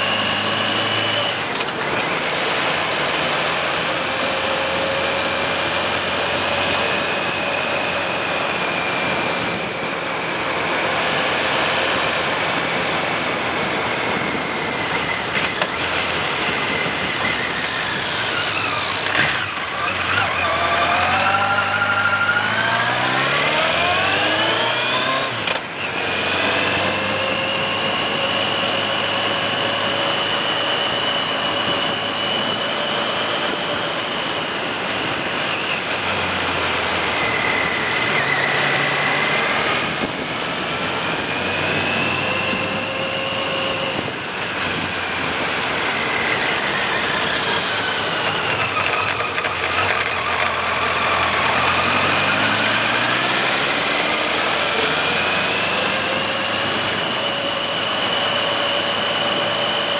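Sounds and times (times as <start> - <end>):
motorcycle engine revving: 0.0 - 59.9
wind noise: 6.5 - 19.5, 28.7 - 54.2.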